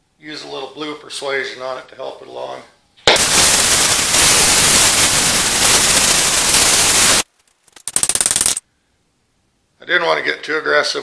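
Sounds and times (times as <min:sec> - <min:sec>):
torch flame hissing: 0:03.2 - 0:07.3.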